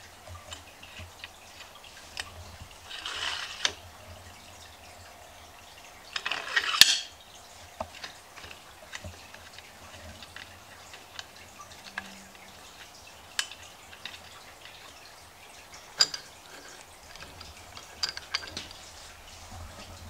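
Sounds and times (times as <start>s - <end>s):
metal parts scraping rattle: 0.4s - 3.8s, 6.1s - 7.1s, 8.0s - 15.0s, 15.8s - 19.9s.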